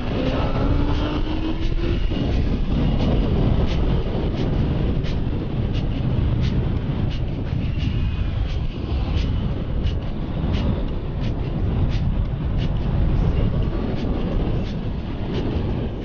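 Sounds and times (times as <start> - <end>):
motorcycle engine revving: 0.0 - 4.0
road noise: 0.0 - 16.0
wind buffeting microphone: 0.0 - 16.0.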